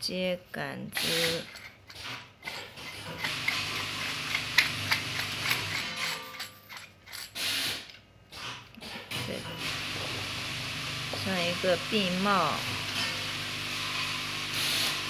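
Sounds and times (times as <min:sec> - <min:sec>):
metal threads clicking and scraping: 0:00.9 - 0:07.4.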